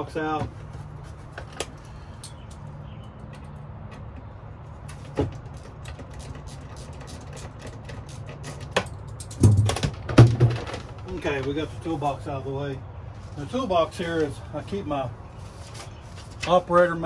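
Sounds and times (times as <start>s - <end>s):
knocks and thumps: 8.7s - 11.1s.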